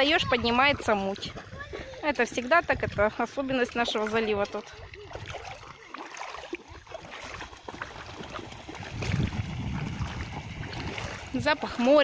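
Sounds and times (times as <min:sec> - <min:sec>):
seawater sloshing around legs: 0:00.0 - 0:12.0
small water splashes: 0:00.0 - 0:12.0
low rumble: 0:08.8 - 0:11.3.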